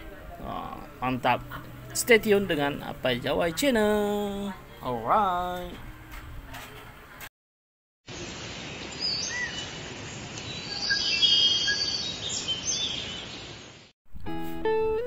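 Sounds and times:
birds chirping: 0:08.7 - 0:13.9.

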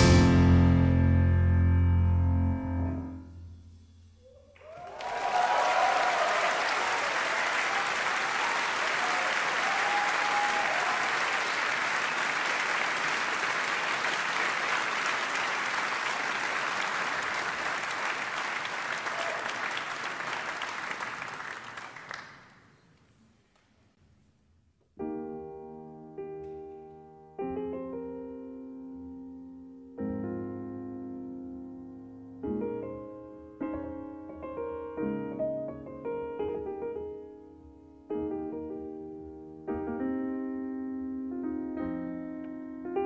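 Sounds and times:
audience applauding: 0:04.5 - 0:22.8.

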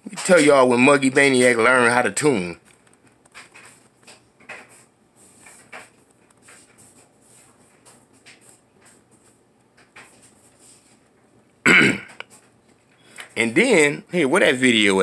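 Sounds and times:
small handling clicks and rustles: 0:02.6 - 0:13.4.

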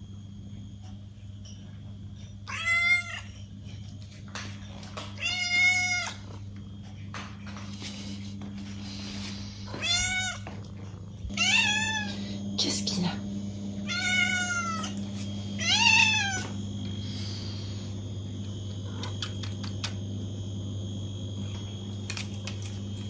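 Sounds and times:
steady low hum: 0:00.0 - 0:23.0
cat meowing: 0:09.8 - 0:10.4, 0:11.4 - 0:12.1, 0:13.9 - 0:15.0, 0:15.6 - 0:16.4.

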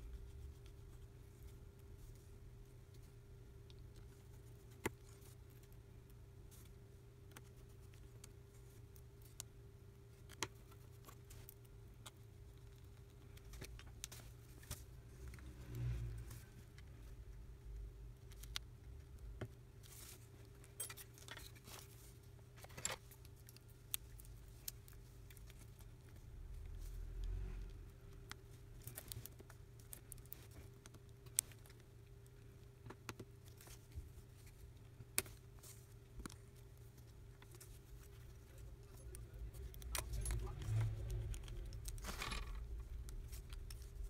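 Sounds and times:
steady low hum: 0:00.0 - 0:44.0
fingers clicking and tapping phone parts: 0:27.2 - 0:44.0.

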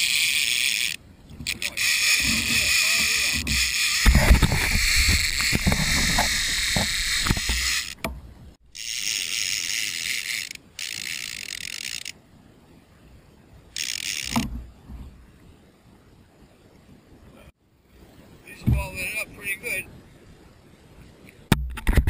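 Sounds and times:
fishing reel drag buzzing: 0:00.0 - 0:08.0, 0:08.7 - 0:12.2, 0:13.7 - 0:14.4
rush of noise with knocks: 0:03.4 - 0:08.2.

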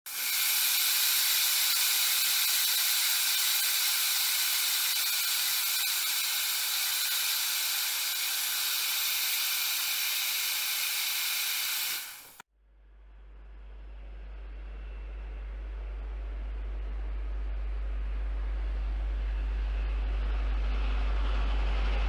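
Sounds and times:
steam hissing: 0:00.1 - 0:12.4.

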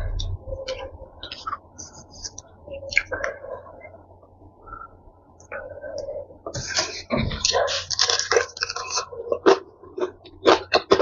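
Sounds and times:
crispy fried chicken crunching: 0:06.6 - 0:11.0.

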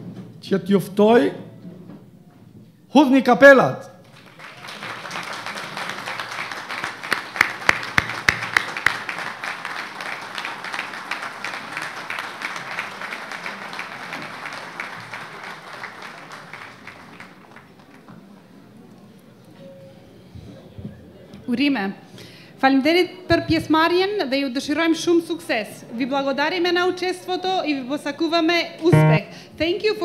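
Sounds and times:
crowd applauding: 0:04.0 - 0:18.0.

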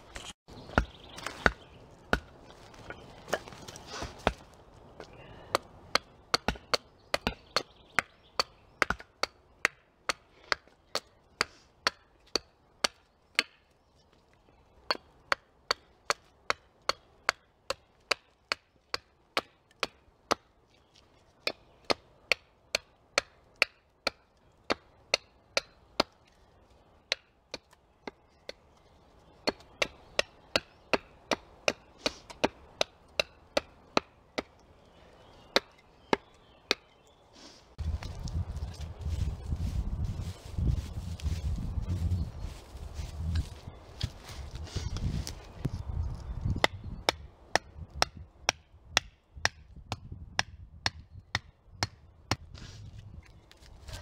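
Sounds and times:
hatchet chopping wood: 0:00.6 - 0:04.5, 0:05.5 - 0:13.7, 0:14.8 - 0:20.6, 0:21.4 - 0:26.4, 0:27.1 - 0:28.6, 0:29.4 - 0:34.6, 0:35.4 - 0:36.9, 0:46.5 - 0:52.6.

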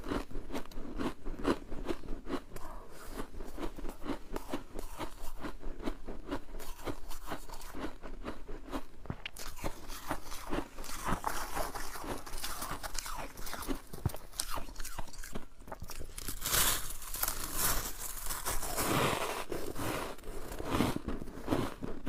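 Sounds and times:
crunching frost chewing: 0:00.0 - 0:22.0
fingers scraping loose frost: 0:16.4 - 0:21.6.

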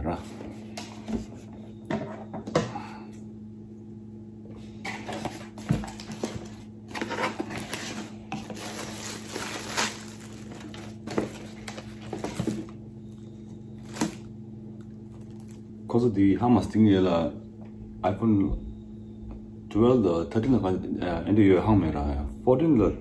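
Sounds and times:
plastic packaging crinkling: 0:05.0 - 0:15.7.

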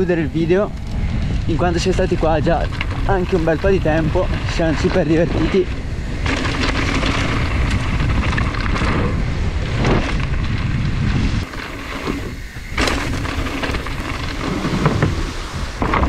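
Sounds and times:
bike tyres and frame rattling: 0:00.0 - 0:16.0
wind rumbling on microphone: 0:00.0 - 0:16.0.

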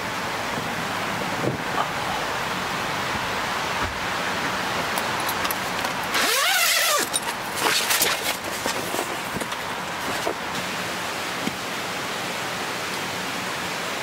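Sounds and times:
steady background hiss: 0:00.0 - 0:14.0
tent flap rustling: 0:05.1 - 0:10.6
zipper pulled open: 0:06.1 - 0:09.4.

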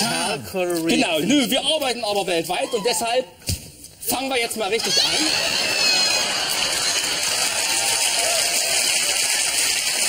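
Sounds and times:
audience applauding: 0:04.8 - 0:10.0.

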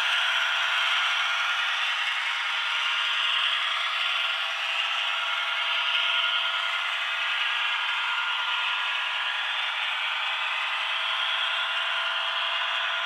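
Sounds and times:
model train wheels rattling: 0:00.0 - 0:11.7
model train motor whir: 0:00.0 - 0:13.0.

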